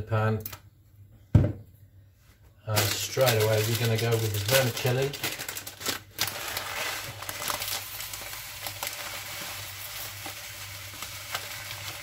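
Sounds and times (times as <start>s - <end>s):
plastic packet crinkling: 2.7s - 12.0s.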